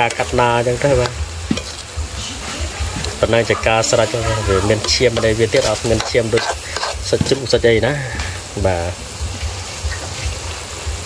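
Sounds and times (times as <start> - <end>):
metal spatula scraping a wok: 0.0 - 7.6
food sizzling in a wok: 0.0 - 11.0.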